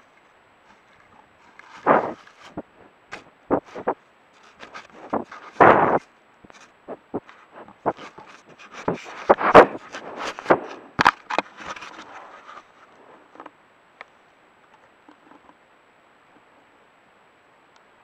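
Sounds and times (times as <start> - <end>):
faint rustles: 0.0 - 15.6
bear knocking and scraping camera: 1.5 - 12.7.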